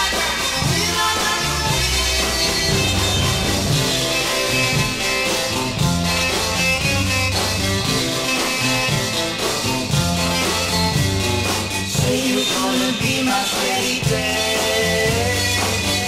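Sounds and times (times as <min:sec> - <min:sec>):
rock and roll instrumental: 0:00.0 - 0:16.0.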